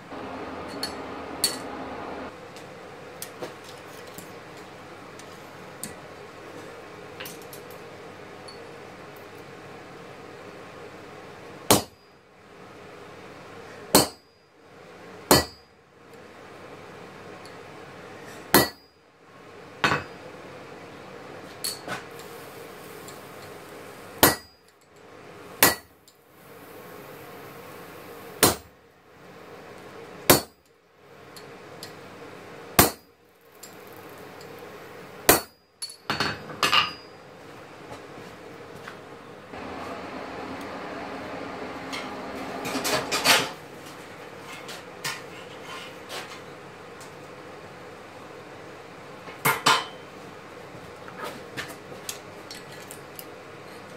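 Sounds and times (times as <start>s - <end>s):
background hiss: 22.1s - 24.2s, 26.2s - 28.4s.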